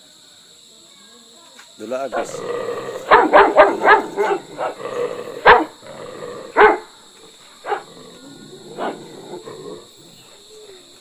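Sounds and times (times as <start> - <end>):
dog barking: 2.1 - 5.8, 6.4 - 7.0, 7.6 - 9.9.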